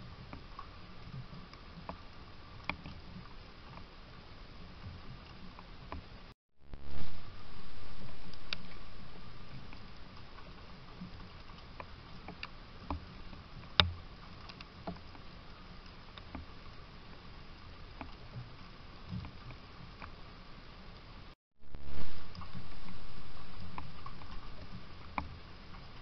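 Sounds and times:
faint steady hum: 0.0 - 26.0
low rush: 6.6 - 10.5, 21.6 - 25.9.

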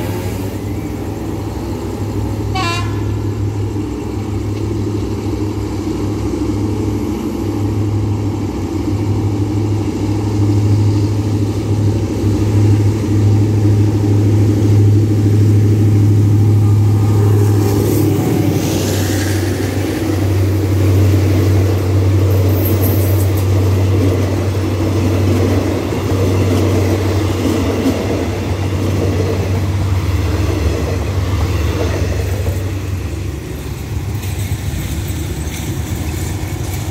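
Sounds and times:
locomotive engine drone: 0.0 - 36.9
train wheels on rails: 0.0 - 36.9.

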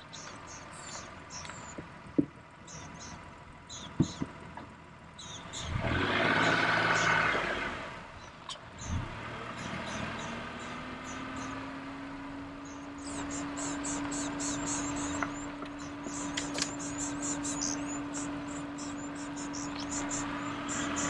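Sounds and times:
vehicle engine hum: 0.0 - 21.0
rapid high-pitched chirping: 12.6 - 21.0.

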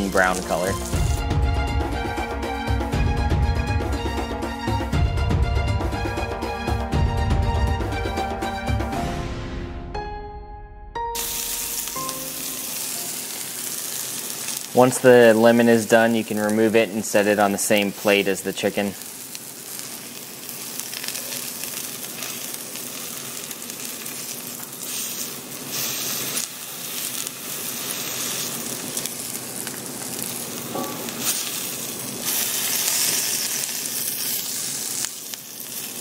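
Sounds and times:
lemon slices sizzling in butter: 0.0 - 1.2, 11.2 - 36.0.

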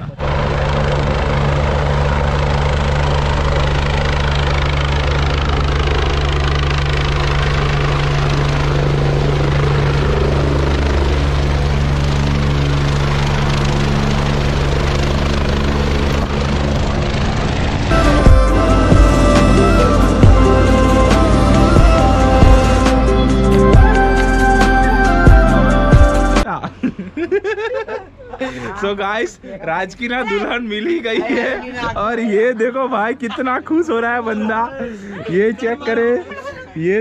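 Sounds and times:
loud helicopter engine: 0.0 - 26.4
helicopter rotor beating: 0.0 - 26.5.

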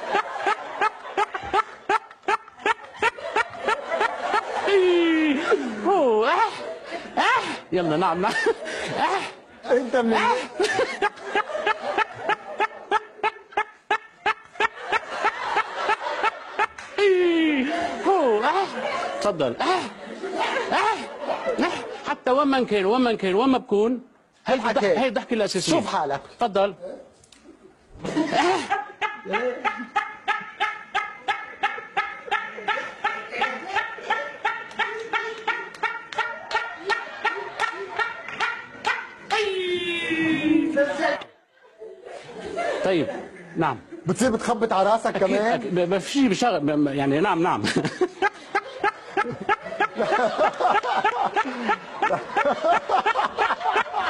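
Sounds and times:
man laughing: 0.0 - 7.6, 8.2 - 22.2, 28.0 - 40.6, 47.6 - 54.0.

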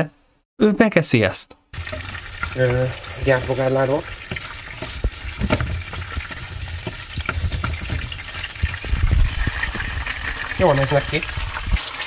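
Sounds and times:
oil sizzling and popping: 1.7 - 12.0
spatula stirring in pan: 1.8 - 10.6.

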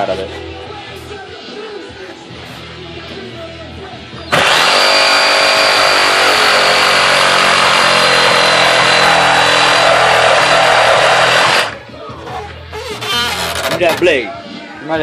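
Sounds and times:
reciprocating saw cutting wood: 4.3 - 11.8.

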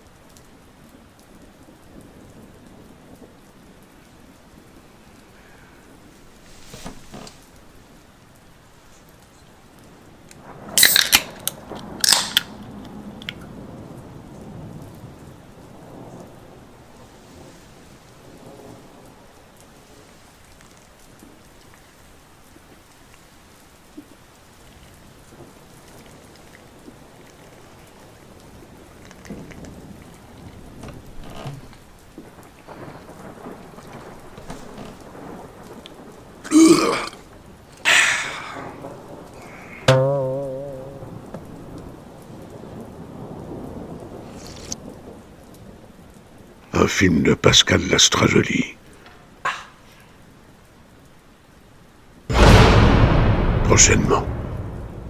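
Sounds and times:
steady rain: 0.0 - 55.0
thunder rumbling: 10.0 - 20.1, 25.0 - 47.0, 52.3 - 55.0
sharp thunder cracks: 10.3 - 17.0, 32.6 - 39.9, 52.3 - 55.0.

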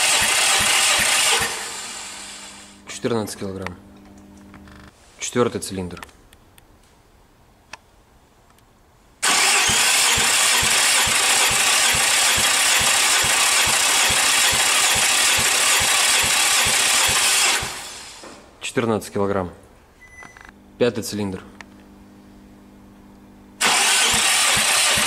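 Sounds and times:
engine cranking on starter: 0.0 - 2.7, 9.2 - 18.2, 23.6 - 25.0.

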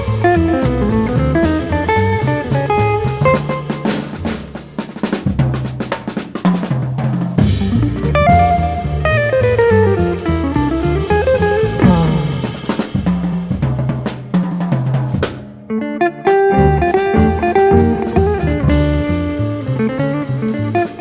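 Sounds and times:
plucked double bass: 0.0 - 3.6, 7.4 - 14.0, 16.6 - 20.9
archtop guitar melody: 0.0 - 5.1, 7.4 - 21.0
drum kit: 0.0 - 21.0.

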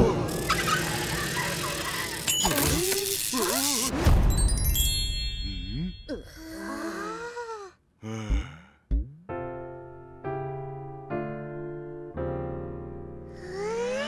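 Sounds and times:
quick thumps: 8.3 - 9.3
piano chords ringing: 9.3 - 13.4.

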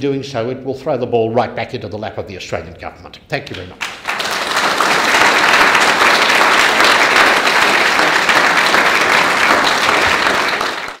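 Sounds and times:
audience applauding: 3.8 - 11.0.

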